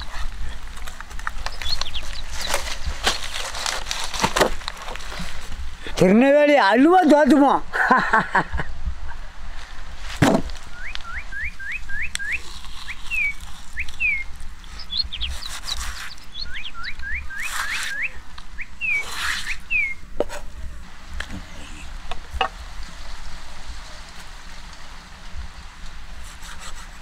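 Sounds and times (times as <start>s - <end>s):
bird whistling calls: 10.7s - 20.0s
high bird chirps: 10.7s - 20.0s.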